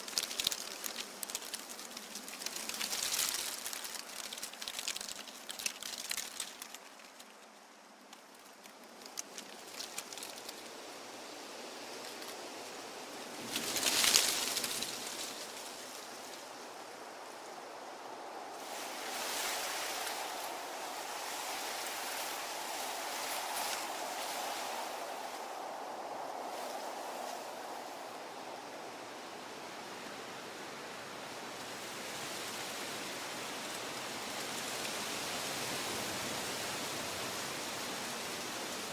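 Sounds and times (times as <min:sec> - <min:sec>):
light twig crackles: 0:00.0 - 0:11.2, 0:13.4 - 0:16.5, 0:18.6 - 0:28.9
leaves and twigs rustling: 0:00.0 - 0:38.9.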